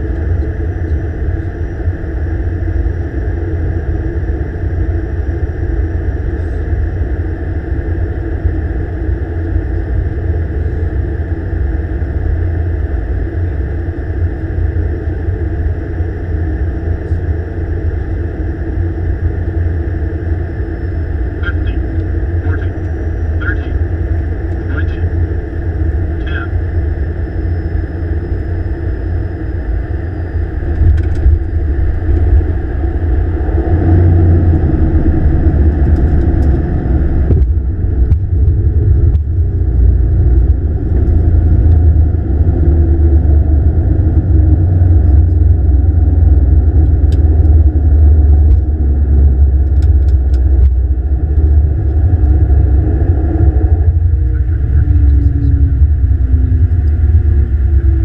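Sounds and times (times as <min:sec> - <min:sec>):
turboprop engines and propellers rumbling: 0:00.0 - 0:58.0
aircraft wheels on runway: 0:29.7 - 0:58.0.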